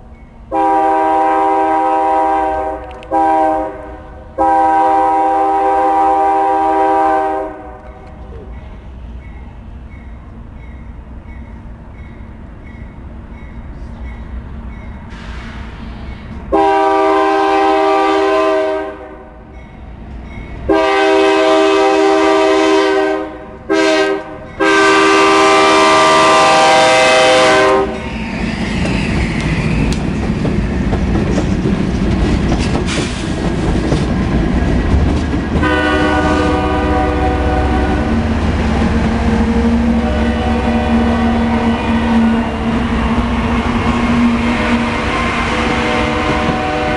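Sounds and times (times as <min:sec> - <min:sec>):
diesel locomotives rumbling past: 0:00.0 - 0:46.9
locomotive horn blasts: 0:00.5 - 0:08.0, 0:16.5 - 0:19.4, 0:20.7 - 0:28.0, 0:35.6 - 0:38.3, 0:39.1 - 0:42.6, 0:44.4 - 0:46.9.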